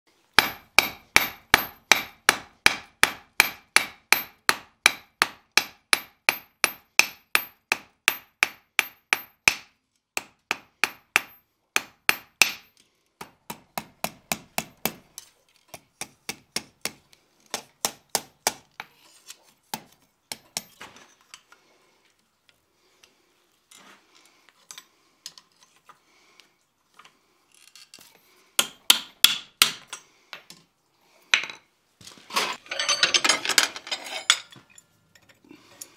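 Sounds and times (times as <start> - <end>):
metal scraping and clinking: 32.1 - 35.9.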